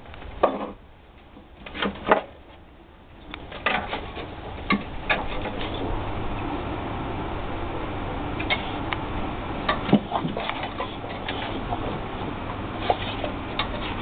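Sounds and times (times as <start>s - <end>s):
steady low rumble: 0.0s - 1.7s, 2.3s - 14.0s
dogs scuffling and mouthing: 9.7s - 14.0s.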